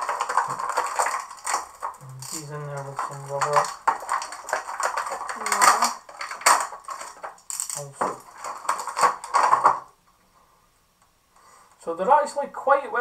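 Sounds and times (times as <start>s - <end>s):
plastic packaging crackling: 0.0s - 9.9s.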